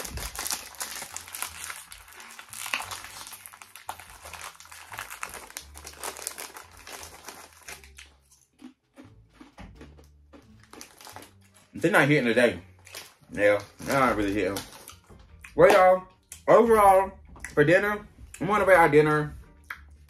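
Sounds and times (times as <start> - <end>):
plastic snack packaging crinkling: 0.0 - 8.6, 10.4 - 15.1.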